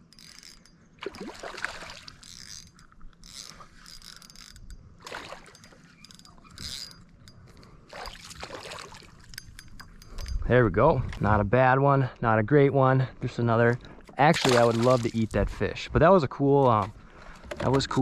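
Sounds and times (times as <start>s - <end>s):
fishing reel cranking: 0.0s - 8.3s, 9.1s - 10.4s.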